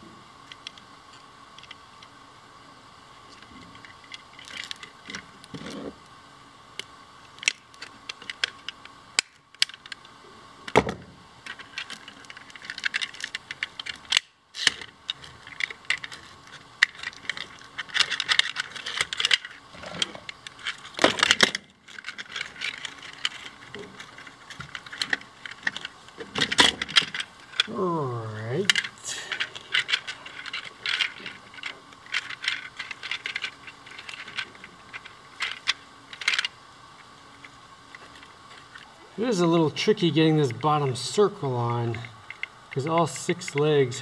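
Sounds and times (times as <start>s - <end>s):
plastic parts clicking and rattling: 0.5s - 2.1s, 3.3s - 5.9s, 6.8s - 10.1s, 10.7s - 27.8s, 28.5s - 38.9s, 41.9s - 44.0s.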